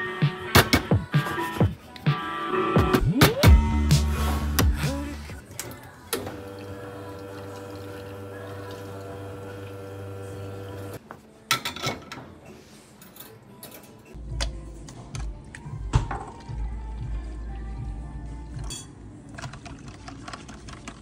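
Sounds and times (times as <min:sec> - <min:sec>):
espresso machine pump humming: 0:06.4 - 0:11.0.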